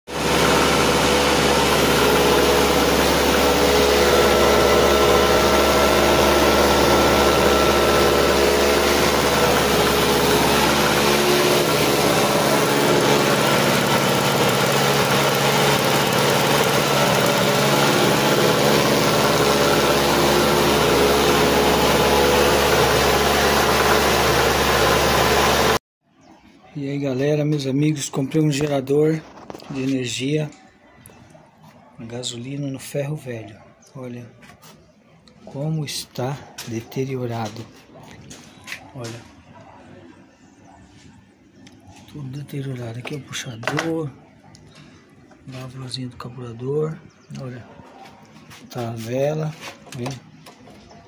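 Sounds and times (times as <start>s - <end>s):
portable generator running: 0.1s - 25.8s.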